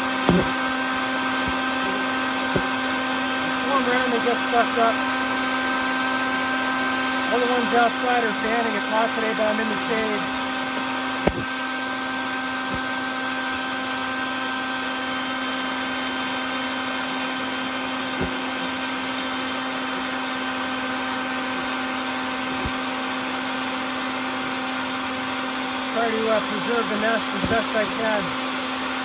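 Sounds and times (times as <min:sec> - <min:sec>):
vacuum cleaner humming: 0:00.0 - 0:29.0.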